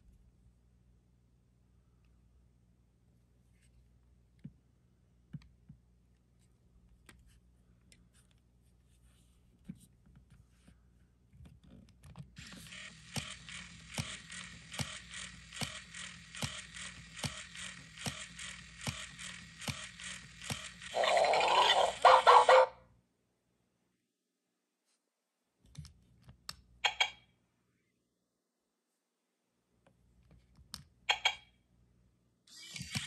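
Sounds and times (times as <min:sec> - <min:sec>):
robotic toy mechanism clicking and whirring: 0:12.4 - 0:22.6, 0:32.5 - 0:33.0
electronic dog sound: 0:12.4 - 0:22.8.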